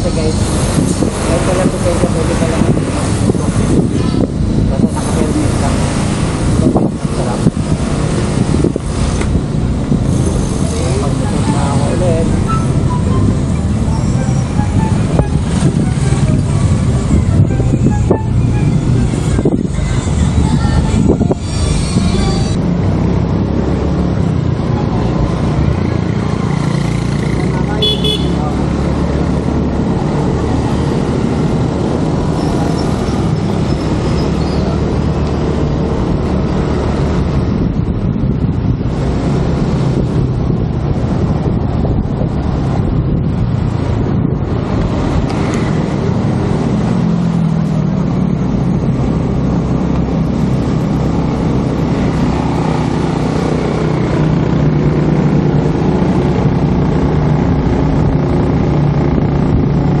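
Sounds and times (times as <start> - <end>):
wind rush on microphone: 0.0 - 60.0
scooter engine hum: 0.4 - 37.0.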